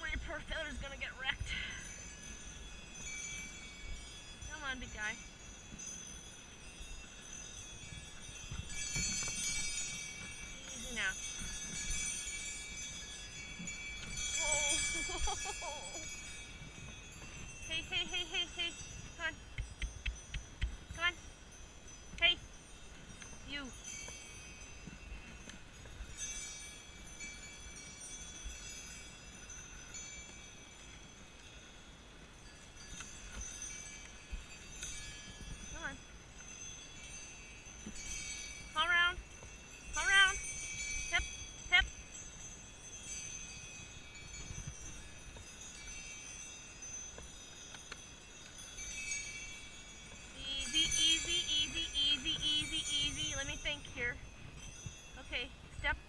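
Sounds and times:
sleigh bells jingling: 0.0 - 56.0
faint ticks: 19.5 - 20.9.

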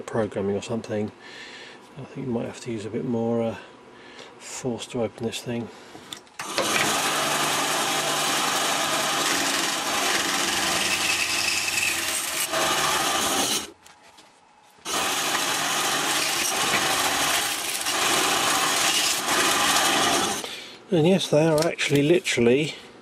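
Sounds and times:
motor hum: 6.4 - 13.7, 14.8 - 20.6
bandsaw cutting plastic: 6.4 - 13.8, 14.8 - 20.5.

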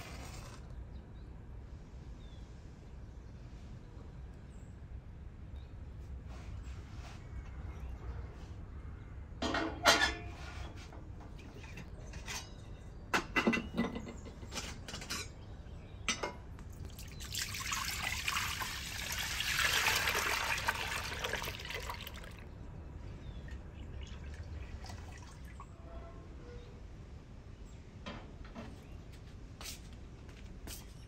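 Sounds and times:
milk splashing into metal pot: 16.9 - 22.4.

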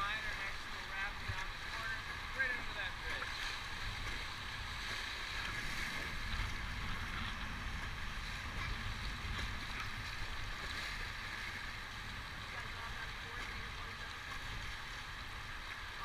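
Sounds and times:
river water rushing over rapids: 0.0 - 16.0
wind buffeting microphone: 3.7 - 12.6.

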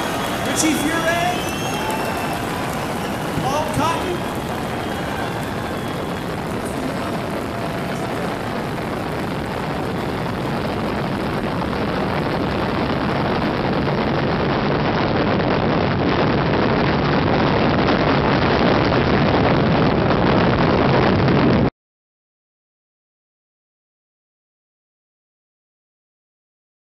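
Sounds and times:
wind rush over microphone: 0.0 - 21.7.

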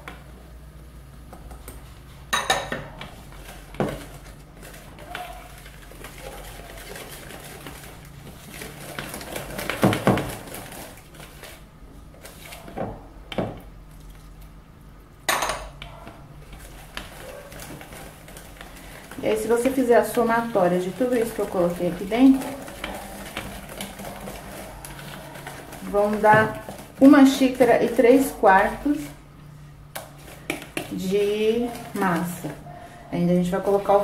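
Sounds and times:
spatula scraping batter in a bowl: 3.0 - 12.8, 16.4 - 29.2, 30.0 - 34.0.

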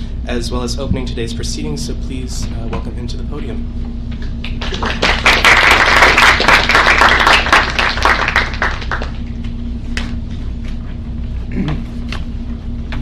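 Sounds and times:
audience applauding: 4.4 - 9.3.

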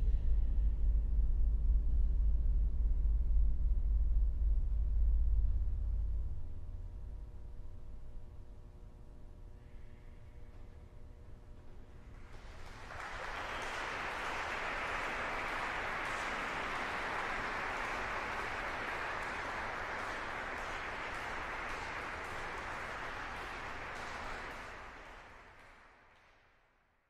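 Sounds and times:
audience applause: 12.2 - 26.4.

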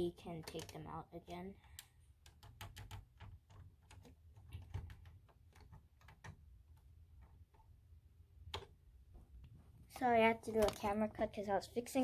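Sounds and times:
plastic bricks clicking and tapping: 0.2 - 7.8, 10.5 - 10.9.

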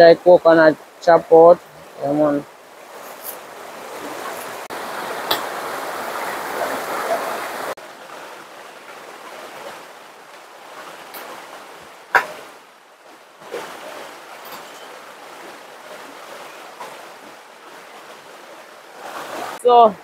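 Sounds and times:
stream water rushing: 0.0 - 20.0
sharp knocks: 12.1 - 12.5.

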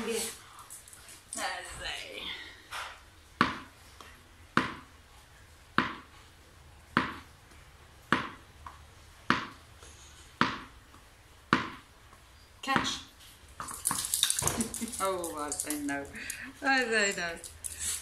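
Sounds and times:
tennis ball bouncing on hard floor: 3.4 - 3.7, 4.5 - 4.9, 5.7 - 6.1, 6.9 - 7.3, 8.0 - 9.6, 10.4 - 11.9, 12.7 - 14.6.

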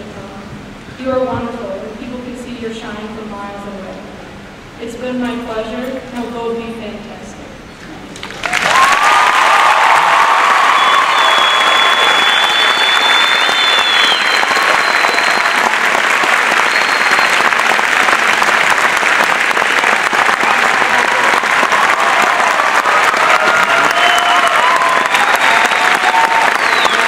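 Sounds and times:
crowd applauding: 8.2 - 27.0.

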